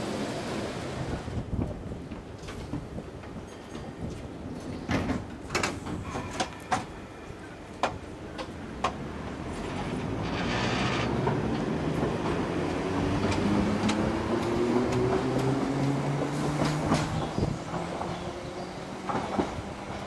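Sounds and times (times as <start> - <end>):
train rumble: 0.0 - 20.0
wheels clicking over rail joints: 7.8 - 18.1.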